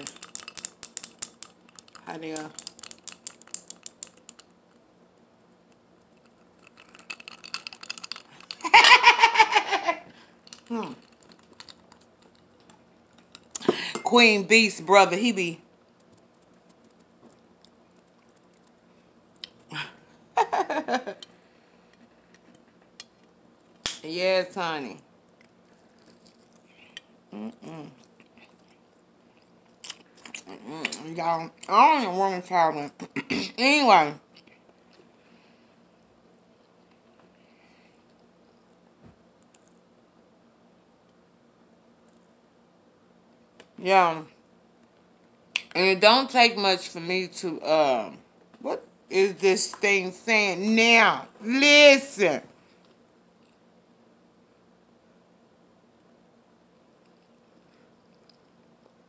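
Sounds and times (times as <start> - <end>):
person chewing food: 25.3 - 31.0.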